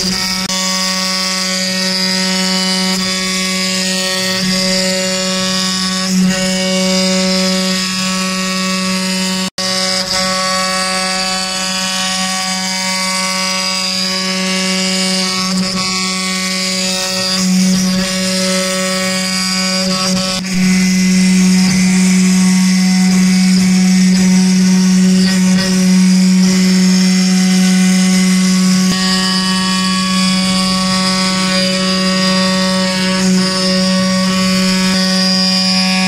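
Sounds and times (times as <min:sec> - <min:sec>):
spindle whining cutting wood: 0:00.0 - 0:36.0.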